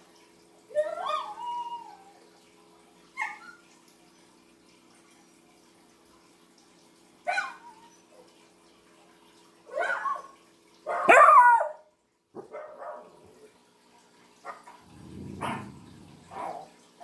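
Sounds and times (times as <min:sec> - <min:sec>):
dog barking: 0:07.3 - 0:07.6, 0:09.7 - 0:10.3, 0:10.9 - 0:11.8, 0:12.4 - 0:13.2, 0:14.5 - 0:16.7.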